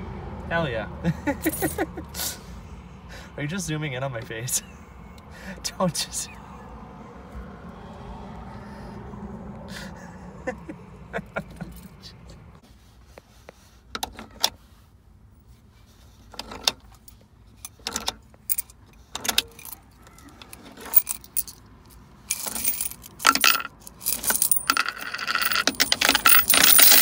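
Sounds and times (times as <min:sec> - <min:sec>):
coins clinking: 0:17.9 - 0:19.8, 0:20.8 - 0:21.6, 0:22.3 - 0:27.0.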